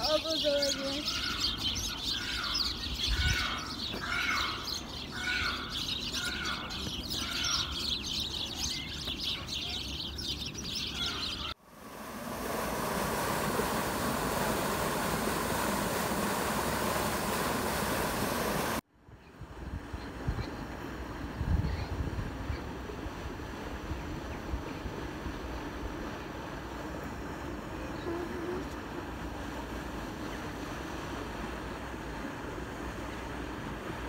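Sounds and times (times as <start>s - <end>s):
aviary birds chirping: 0.0s - 11.6s
repeated bird call: 0.0s - 11.6s
steady rushing noise: 11.6s - 18.8s.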